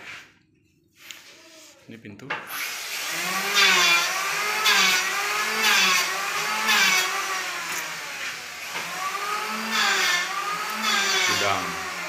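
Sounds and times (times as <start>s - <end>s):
electric hand planer shaving wood: 2.5s - 12.0s.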